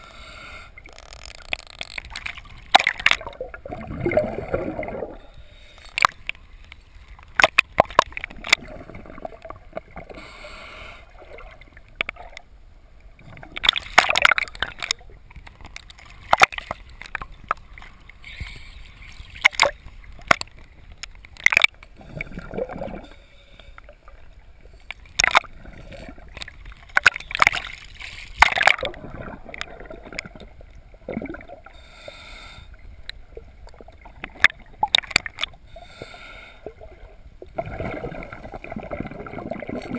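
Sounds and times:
sharp clicks and pops: 0.8 - 3.5, 5.8 - 8.7, 13.4 - 17.7, 19.2 - 22.3, 24.8 - 25.6, 26.3 - 30.4, 33.0 - 35.6
sea water sloshing and splashing: 0.8 - 10.4, 13.2 - 23.2, 23.8 - 31.9, 33.3 - 39.9.

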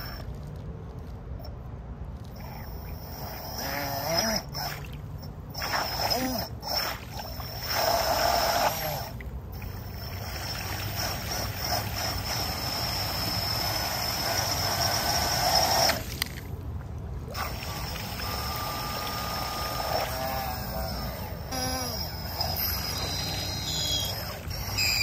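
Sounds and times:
water jet spraying and splashing: 2.3 - 16.4, 17.3 - 20.7.

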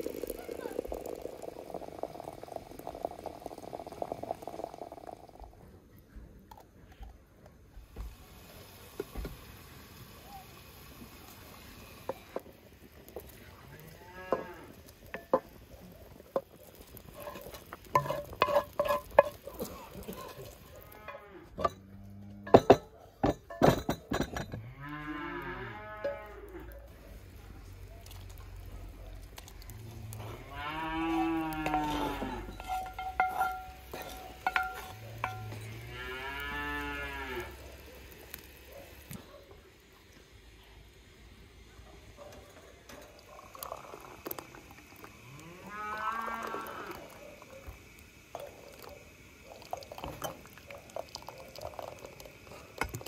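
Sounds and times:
cow mooing: 13.9 - 14.8, 24.6 - 26.7, 30.0 - 32.8, 34.1 - 37.6, 45.3 - 47.0
wooden spoon scraping a pan: 16.3 - 21.8, 30.2 - 36.0
metal cookware knocking and clinking: 18.0 - 19.4, 21.6 - 21.8, 22.4 - 24.6, 32.5 - 35.7.

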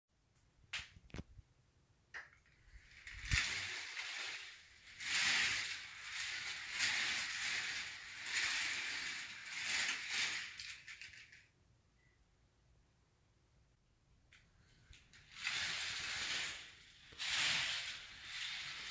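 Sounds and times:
toy roller coaster wheels rattling: 2.4 - 11.6, 14.6 - 18.9.

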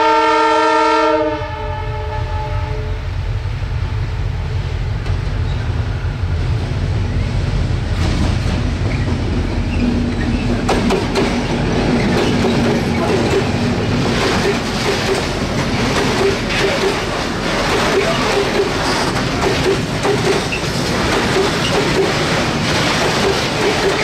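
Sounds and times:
locomotive engine rumble: 3.0 - 24.0
wagons wheel clatter: 8.8 - 24.0.

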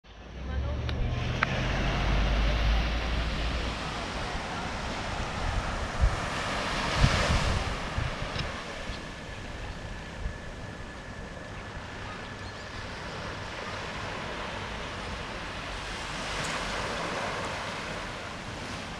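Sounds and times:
wind rumbling on microphone: 0.2 - 18.9
small waves washing onto sand: 1.4 - 10.1, 12.7 - 18.9.

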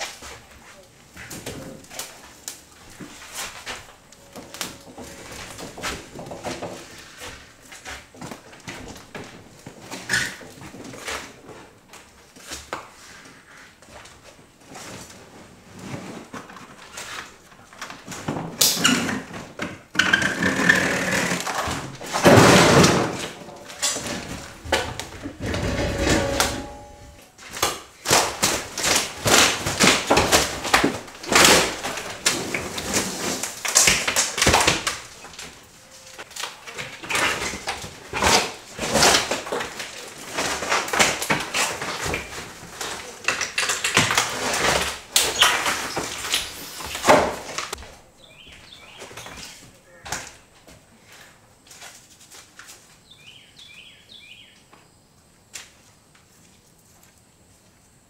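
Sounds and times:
rumbling and scraping: 2.9 - 8.1, 20.2 - 27.3
wooden panels scraping: 18.2 - 27.3, 28.2 - 35.4.

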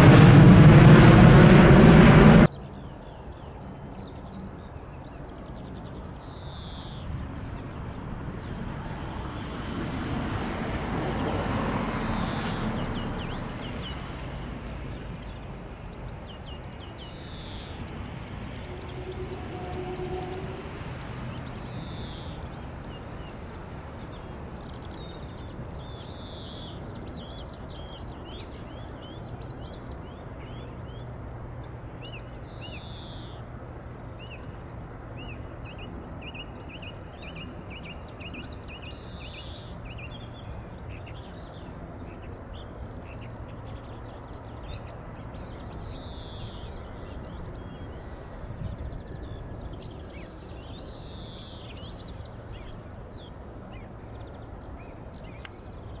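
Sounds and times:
low rumble: 0.0 - 2.5, 17.9 - 21.7
small birds chirping: 11.8 - 56.0.

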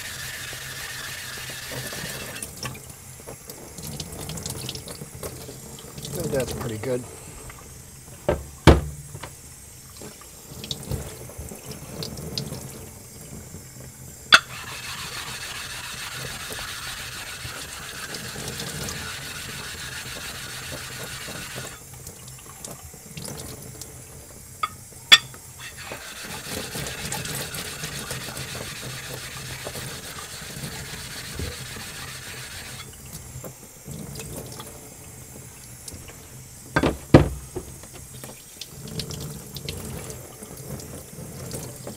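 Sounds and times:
plate scraping on whetstone: 0.0 - 2.4, 14.4 - 21.8, 25.6 - 32.9
tap water running into sink: 0.0 - 41.9
sharp knocks: 8.3 - 9.3.

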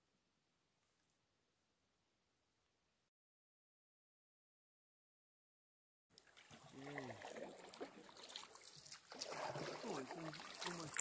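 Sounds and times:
water trickling and splashing: 6.1 - 11.0
canoe paddling: 6.2 - 11.0.

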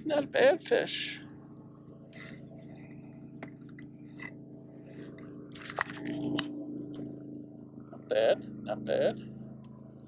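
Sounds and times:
steady low hum: 0.0 - 10.0
clicks and rustles handling fish: 5.6 - 6.2.

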